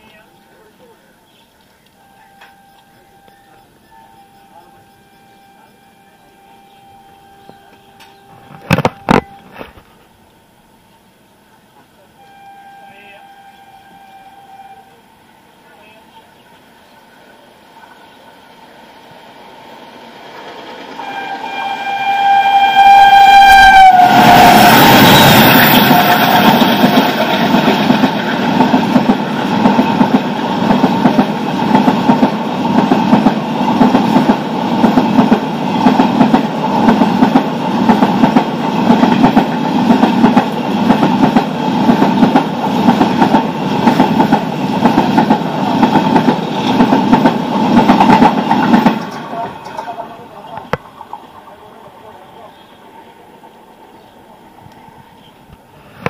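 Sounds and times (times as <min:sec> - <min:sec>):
locomotive horn chord: 0:02.0 - 0:09.6, 0:12.1 - 0:15.5, 0:21.0 - 0:27.2
train wheels clattering over rail joints: 0:25.9 - 0:51.6.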